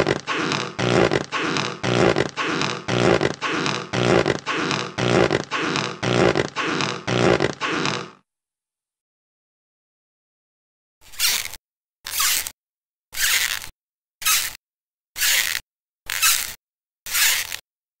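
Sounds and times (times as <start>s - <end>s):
cartoon squeaky footsteps: 0.0s - 8.1s, 13.2s - 14.6s, 15.2s - 17.6s.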